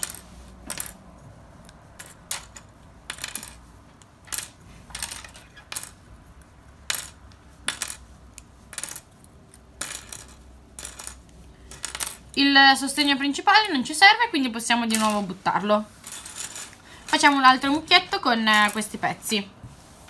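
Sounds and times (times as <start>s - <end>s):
small plastic pieces clattering: 2.0s - 6.0s, 9.8s - 12.3s, 16.0s - 18.9s.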